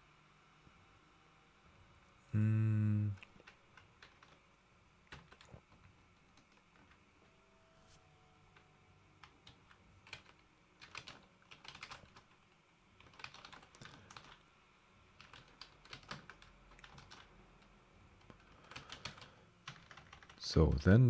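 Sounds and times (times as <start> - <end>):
faint keyboard typing: 3.1 - 7.1, 8.5 - 14.5, 15.1 - 20.9.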